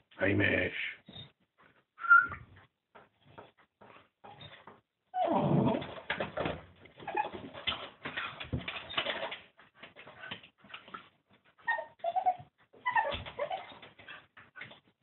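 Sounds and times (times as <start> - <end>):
dog whimpering and whining: 2.0 - 2.5, 4.3 - 5.9, 7.0 - 7.4, 11.6 - 14.2.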